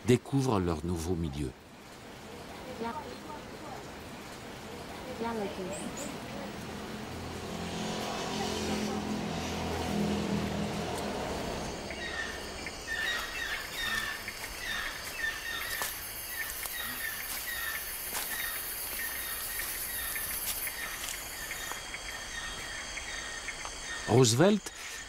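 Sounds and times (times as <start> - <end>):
insects calling: 0.0 - 25.0
high insect hiss: 1.3 - 25.0
short insect chirp: 10.4 - 25.0.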